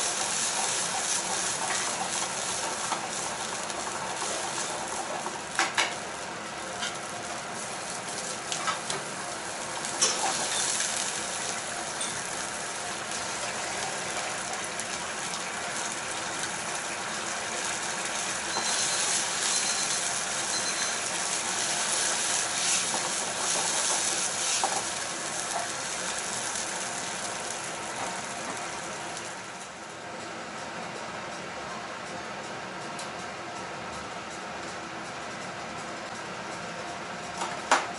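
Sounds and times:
sauce sizzling and bubbling: 0:00.0 - 0:29.8.

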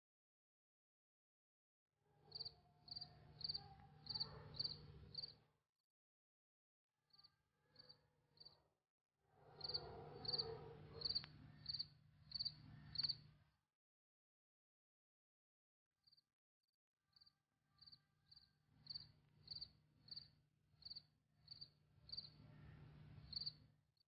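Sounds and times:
crickets chirping: 0:02.3 - 0:05.3, 0:09.6 - 0:10.4, 0:11.0 - 0:13.2, 0:18.3 - 0:22.4, 0:23.3 - 0:23.5.

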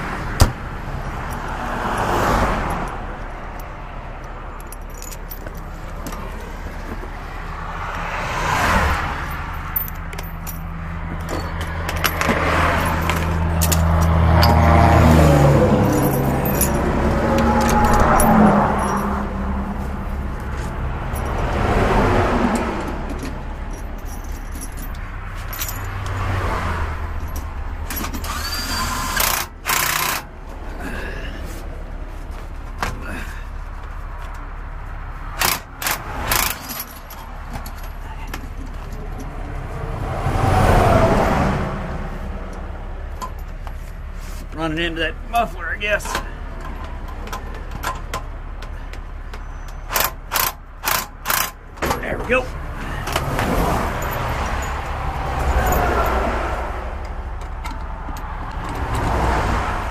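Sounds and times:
diesel truck engine running: 0:00.0 - 0:40.6
highway traffic rushing past: 0:00.0 - 0:59.9.

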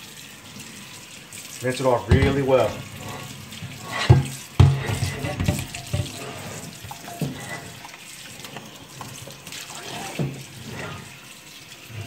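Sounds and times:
tap water running onto a pan: 0:00.0 - 0:12.0
pan knocking in a sink: 0:02.0 - 0:02.9, 0:03.9 - 0:07.8.

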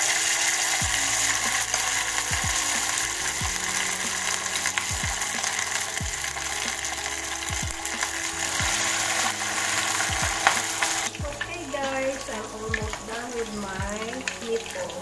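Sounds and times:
meatballs sizzling in hot oil: 0:00.0 - 0:15.0.

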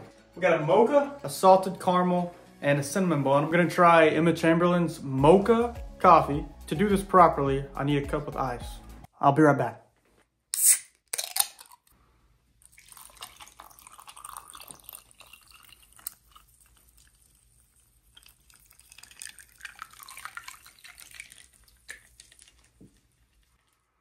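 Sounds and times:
coffee pouring over ice: 0:12.6 - 0:23.6.

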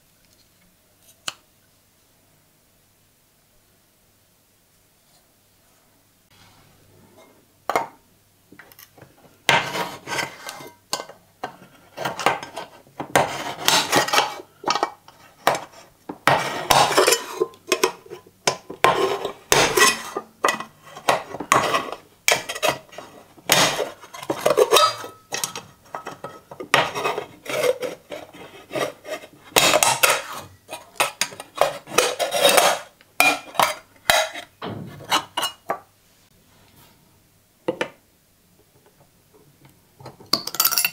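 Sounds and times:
can opener cutting metal: 0:16.3 - 0:25.7.

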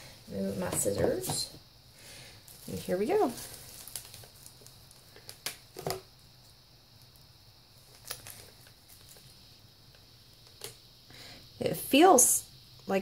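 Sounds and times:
bubble wrap crinkling and clicking: 0:02.5 - 0:10.8.

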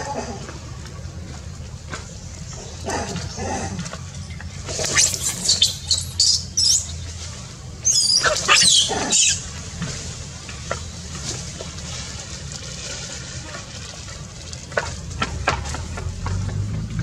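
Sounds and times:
low background hum: 0:00.0 - 0:17.0
squeaky animal calls: 0:04.8 - 0:06.9, 0:07.8 - 0:09.4.

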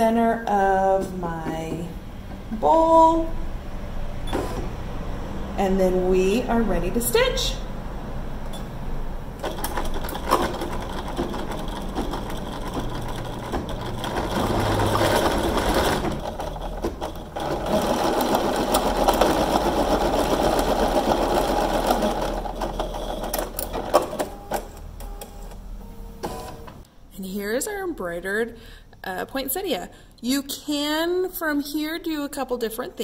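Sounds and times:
sewing machine needle chatter: 0:09.4 - 0:23.7.

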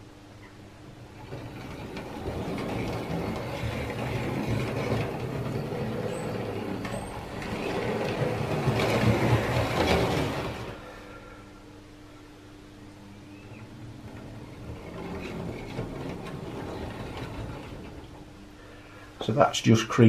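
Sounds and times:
chassis rattling on track: 0:01.2 - 0:10.8, 0:14.1 - 0:18.4
model train motor running: 0:01.2 - 0:10.8.

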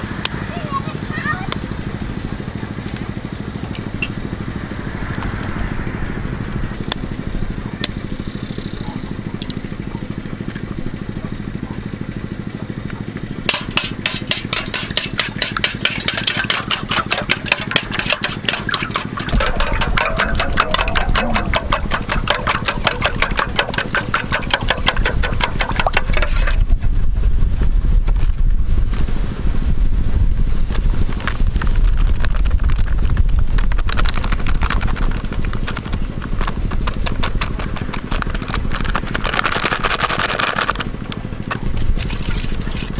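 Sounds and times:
low engine-like hum: 0:00.0 - 0:42.9
utensil clinking against metal bowl: 0:13.5 - 0:26.6.

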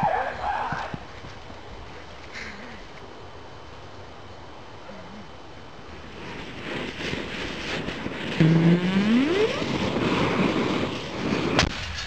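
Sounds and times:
aerosol can hissing in fire: 0:05.9 - 0:12.0
rising tone: 0:08.4 - 0:09.8.

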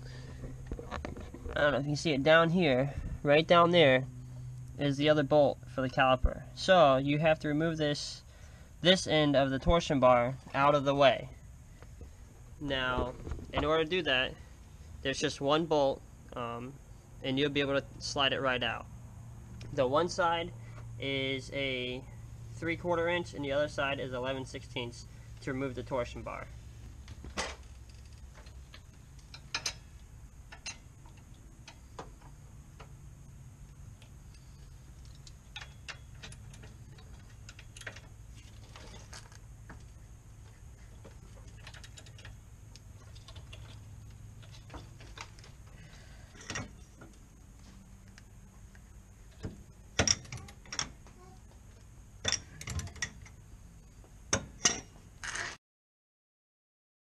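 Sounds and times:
sharp metal clanks: 0:54.3 - 0:55.0.

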